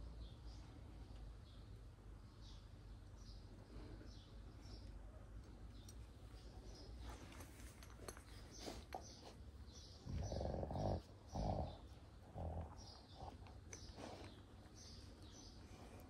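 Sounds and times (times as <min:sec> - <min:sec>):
dogs growling: 0:07.0 - 0:16.0.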